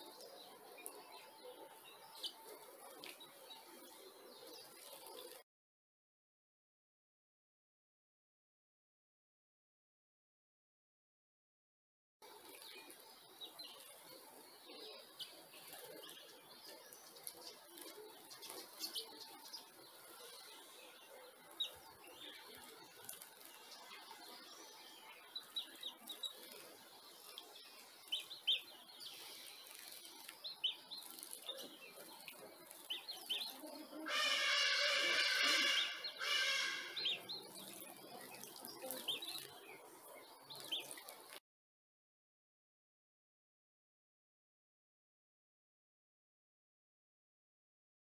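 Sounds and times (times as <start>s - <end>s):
birds chirping: 0.0s - 5.4s, 12.2s - 41.4s
buzzy bird call: 33.4s - 37.3s.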